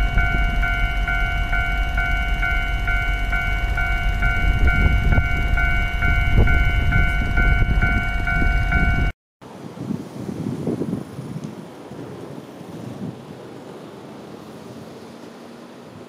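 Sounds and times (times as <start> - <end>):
level-crossing warning bell ringing: 0.0 - 9.2
freight train rumble: 0.0 - 16.0.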